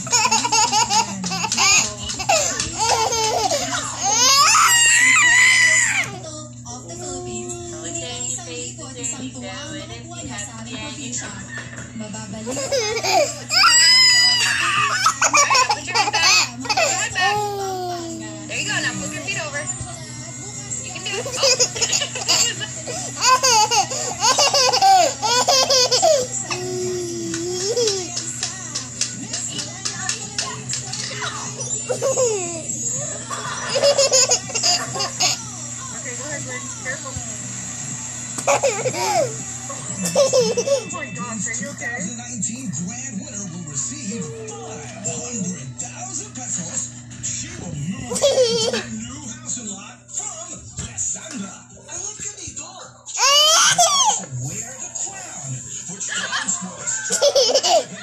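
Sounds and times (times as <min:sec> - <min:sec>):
toddler laughing: 0:00.0 - 0:06.1, 0:12.5 - 0:18.5, 0:21.1 - 0:28.2, 0:31.6 - 0:32.7, 0:33.3 - 0:35.4, 0:38.4 - 0:39.4, 0:40.0 - 0:40.9, 0:48.1 - 0:48.9, 0:57.0 - 0:58.0.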